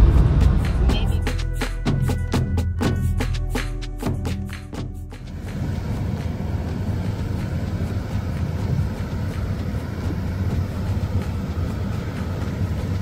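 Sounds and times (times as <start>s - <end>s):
car cabin road rumble: 4.1s - 13.0s.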